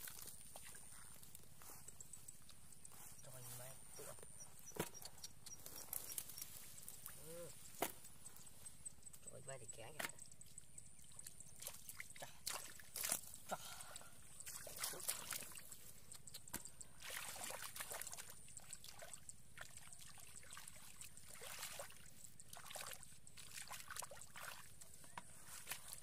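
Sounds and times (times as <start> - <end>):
hands splashing in muddy puddle: 11.6 - 13.3, 14.4 - 15.8.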